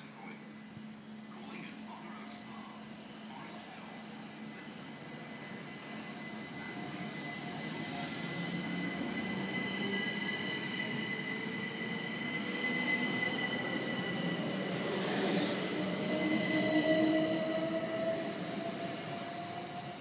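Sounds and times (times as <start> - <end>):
electric train traction whine: 2.9 - 20.0
train hiss: 7.2 - 20.0.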